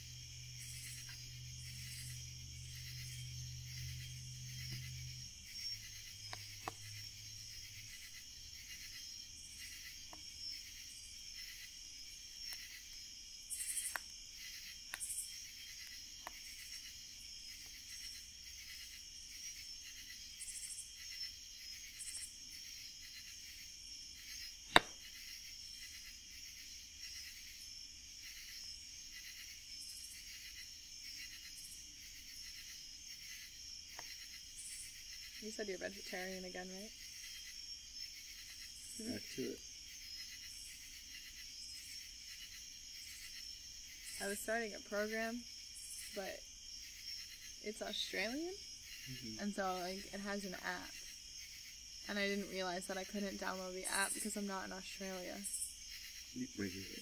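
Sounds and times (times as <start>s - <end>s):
night insects chorus: 0.0s - 57.0s
wood fire crackling and popping: 24.7s - 25.0s.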